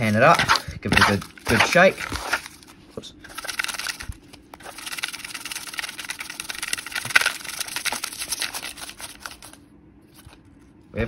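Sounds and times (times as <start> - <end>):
paper slips rustling in plastic pan: 0.0 - 9.6.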